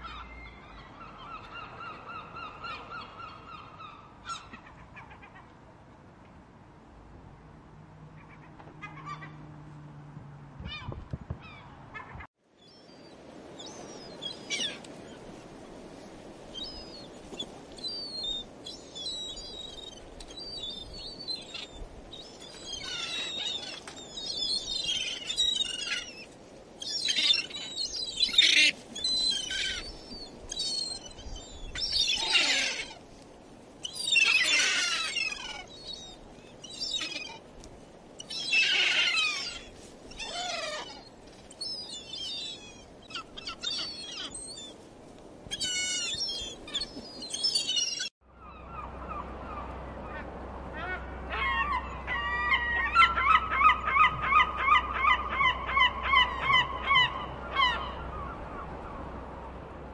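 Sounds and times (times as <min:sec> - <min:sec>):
gulls calling: 0:08.1 - 0:09.5, 0:10.6 - 0:15.4, 0:16.4 - 0:33.1, 0:33.8 - 0:37.6, 0:38.2 - 0:44.8, 0:45.5 - 0:59.8.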